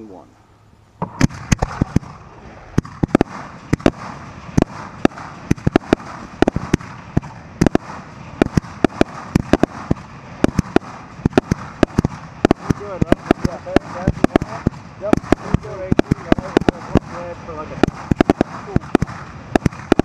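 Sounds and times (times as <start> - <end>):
fireworks bangs: 1.0 - 20.0.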